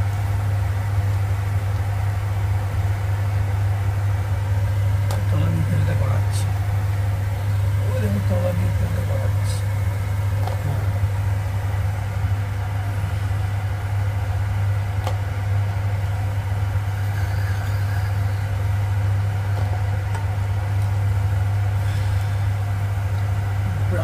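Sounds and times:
steady low hum: 0:00.0 - 0:24.0
faint sizzle of deep-frying: 0:06.4 - 0:24.0.

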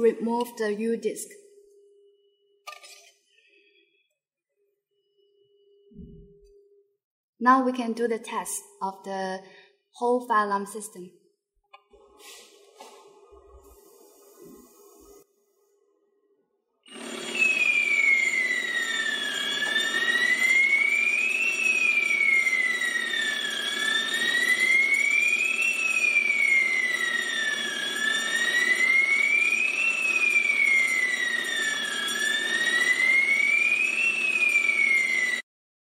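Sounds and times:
fire alarm siren: 0:16.9 - 0:35.5.

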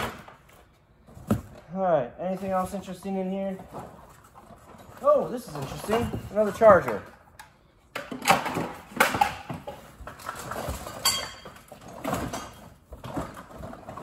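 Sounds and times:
hard plastic items clattering: 0:02.4 - 0:07.2, 0:07.9 - 0:14.0.

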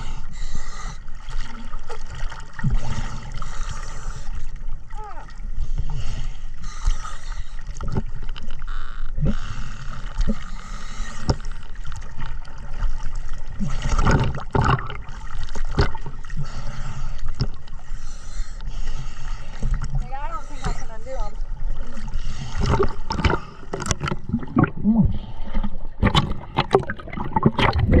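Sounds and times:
water sloshing and gurgling: 0:00.0 - 0:28.0.

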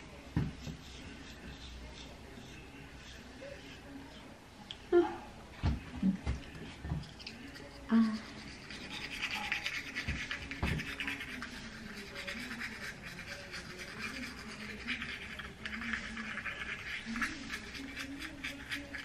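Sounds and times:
toothbrush scrubbing teeth: 0:07.0 - 0:19.0.

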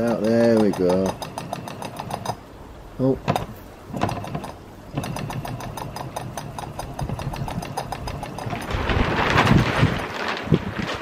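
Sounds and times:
toy steam engine chuffing: 0:00.0 - 0:02.4, 0:03.3 - 0:08.6.

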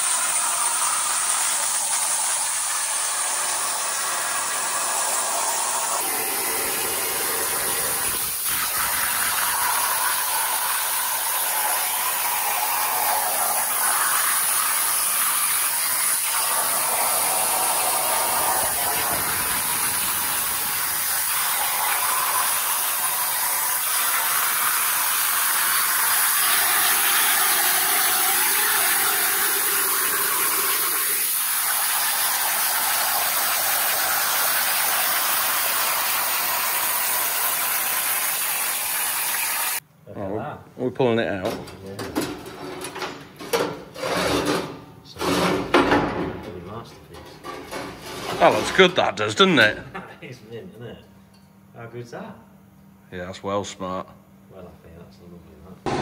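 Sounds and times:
plasma cutter hissing: 0:00.0 - 0:39.8.

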